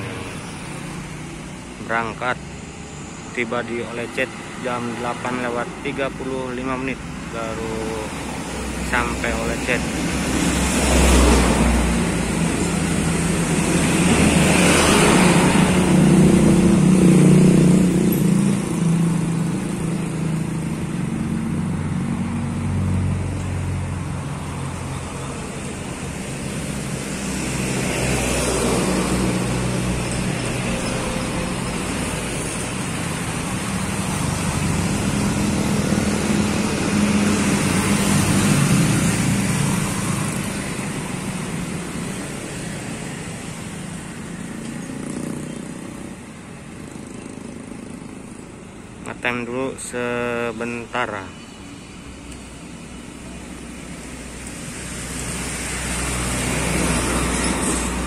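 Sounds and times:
trucks driving past: 0.0 - 58.0.

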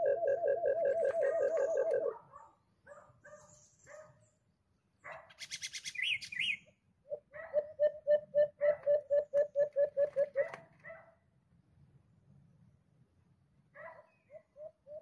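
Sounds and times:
dove low hooting: 0.0 - 2.2, 7.1 - 10.7, 14.3 - 15.0
higher bird chirping: 0.0 - 2.2, 3.2 - 10.4.

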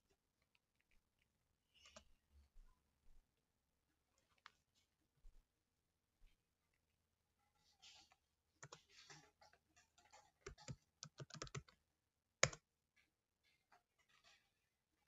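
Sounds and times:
faint keyboard typing: 0.4 - 2.2, 8.0 - 11.8, 12.4 - 12.6.

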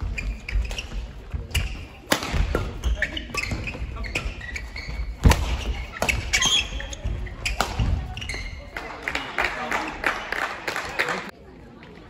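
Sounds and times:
shoes squeaking on court: 0.0 - 8.8
rackets hitting shuttlecock: 0.2 - 8.3.

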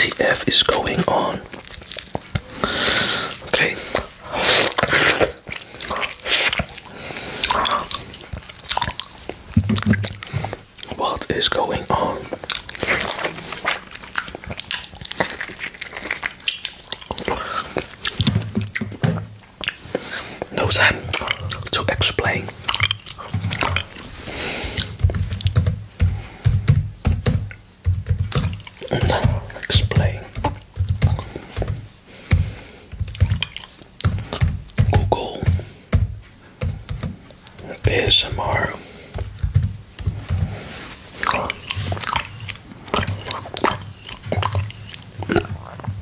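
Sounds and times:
wet mouth clicks and smacks: 0.0 - 35.6, 36.7 - 46.0
biting and sucking orange slice: 0.1 - 19.0
tongue licking glass plate: 1.5 - 19.0, 19.6 - 25.6, 40.0 - 46.0.

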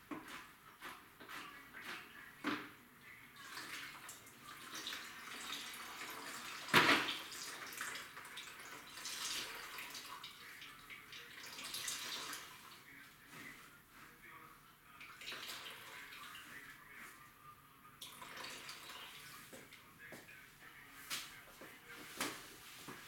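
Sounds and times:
mop sloshing in bucket of water: 3.4 - 12.8, 18.0 - 19.2
mop hitting plastic bucket: 6.7 - 7.2.

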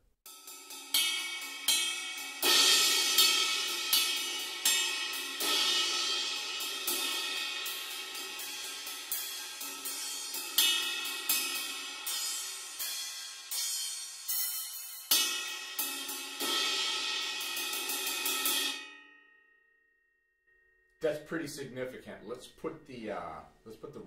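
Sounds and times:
ride cymbal struck with drumstick: 0.3 - 19.0.

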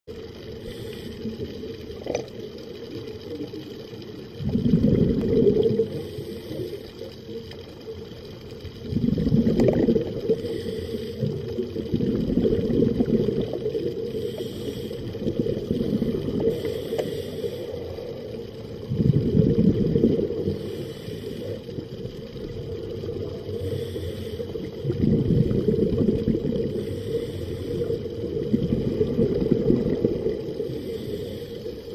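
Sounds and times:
exhaled bubbles underwater: 0.1 - 31.9
hissing regulator inhalations: 0.5 - 1.7, 5.8 - 7.3, 10.2 - 11.7, 13.8 - 18.3, 20.4 - 22.0, 23.4 - 24.8, 26.6 - 28.2, 30.5 - 31.9.

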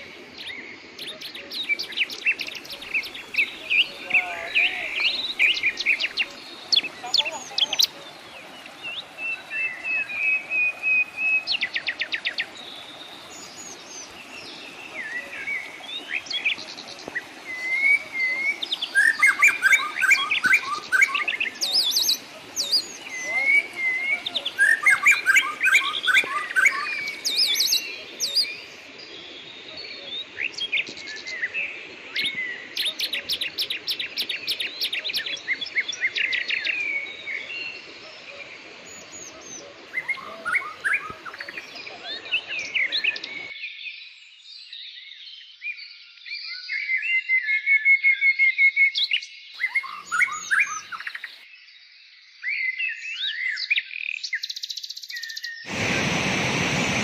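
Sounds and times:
steady background hiss: 0.0 - 43.5, 55.7 - 57.0
birds singing and calling: 0.0 - 55.8.

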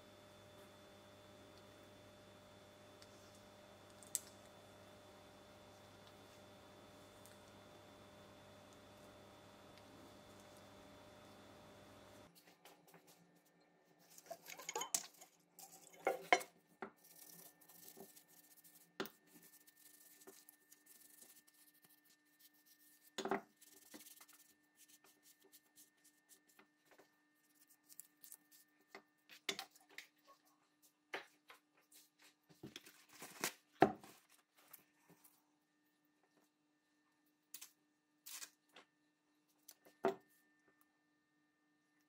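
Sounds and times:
paper rustling: 32.0 - 34.9.

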